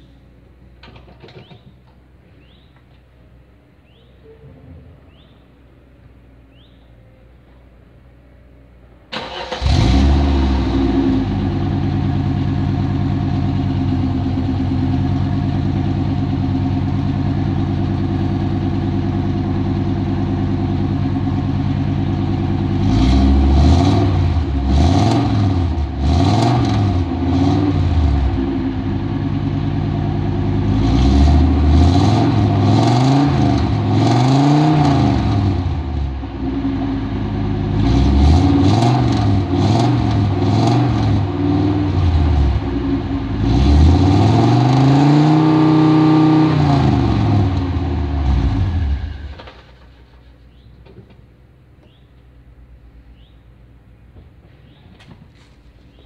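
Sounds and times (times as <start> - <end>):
car engine starting and idling: 0.0 - 4.2, 4.8 - 56.0
engine revving: 9.1 - 18.8, 19.6 - 50.0.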